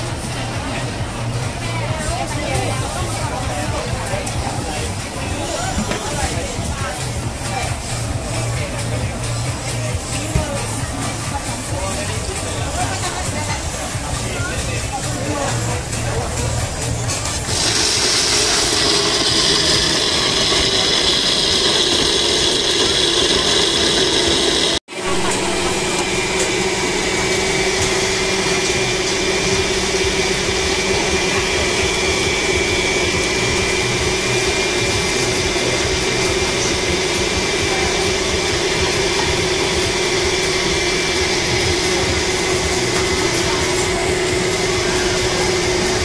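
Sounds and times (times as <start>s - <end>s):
steady motor hum: 0.0s - 46.0s
blender running: 16.4s - 46.0s.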